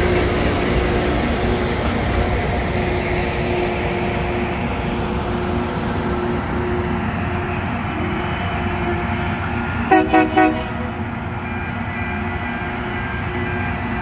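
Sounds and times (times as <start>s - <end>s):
diesel engines droning: 0.0s - 14.0s
train rumbling on rails: 0.0s - 14.0s.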